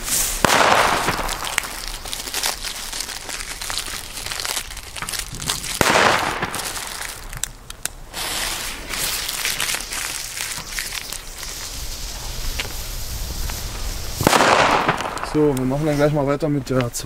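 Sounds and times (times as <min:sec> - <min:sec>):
firecracker bangs: 0:00.0 - 0:02.1, 0:05.5 - 0:07.3, 0:13.2 - 0:16.0.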